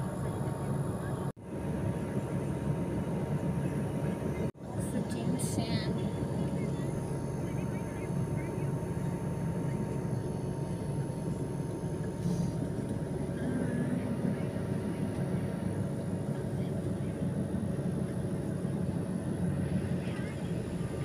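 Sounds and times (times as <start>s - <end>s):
engine droning: 0.0s - 21.0s
faint voices: 3.4s - 21.0s.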